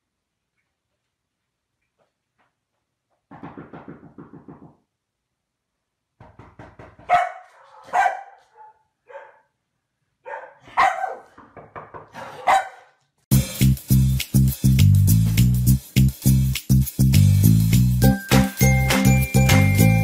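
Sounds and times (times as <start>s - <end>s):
dog barking: 7.0s - 9.6s, 10.2s - 11.4s, 12.1s - 13.0s.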